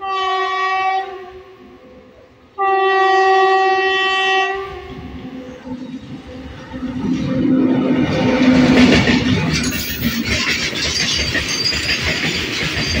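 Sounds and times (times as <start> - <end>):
locomotive air horn blasts: 0.0 - 2.0, 2.6 - 5.1
freight train rumbling on rails: 0.0 - 13.0.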